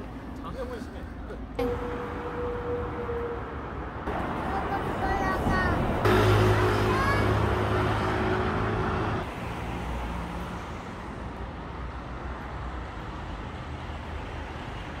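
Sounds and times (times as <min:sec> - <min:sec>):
low engine-like hum: 0:00.0 - 0:09.3
traffic rumble: 0:00.0 - 0:15.0.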